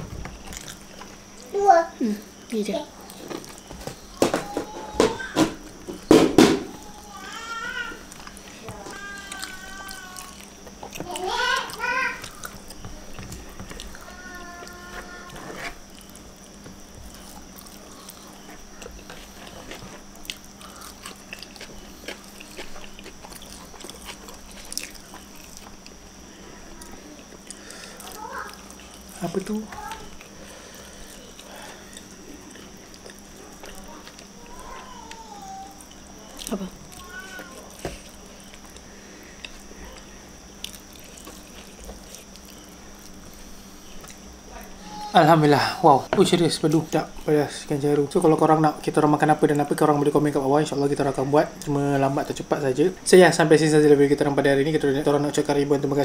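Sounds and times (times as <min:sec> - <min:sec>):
faint steady hum: 0:00.0 - 0:56.0
mouths chewing: 0:07.0 - 0:44.8
wet eating clicks and smacks: 0:15.9 - 0:26.0, 0:35.0 - 0:44.3.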